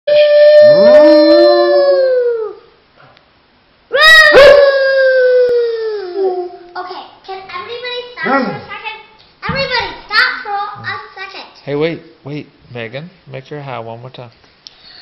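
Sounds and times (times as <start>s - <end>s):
dog howling: 0.1s - 2.6s, 4.0s - 6.6s.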